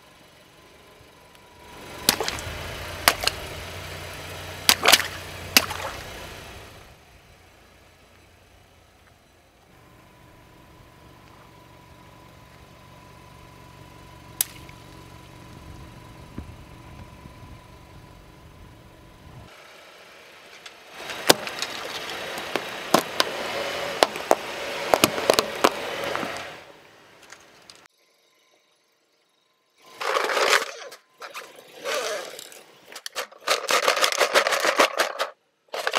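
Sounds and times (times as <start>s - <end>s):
tyre crunching object: 21.0s - 26.5s
faint steady tone: 26.7s - 31.6s.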